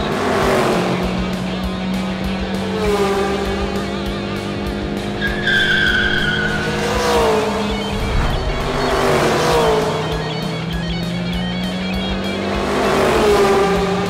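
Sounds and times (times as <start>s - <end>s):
background music with steady beat: 0.0s - 14.0s
cartoon race car engines: 0.0s - 14.0s
tire squeal: 5.0s - 12.4s.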